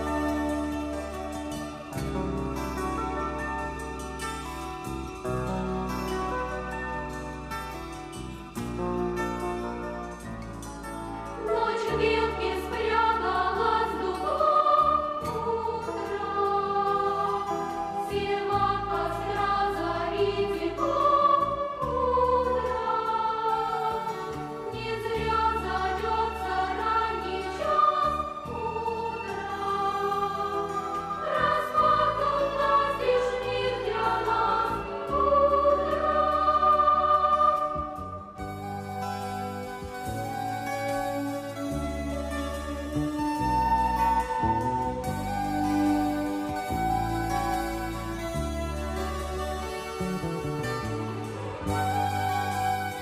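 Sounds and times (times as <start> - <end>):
group singing in chorus: 11.4 - 38.7.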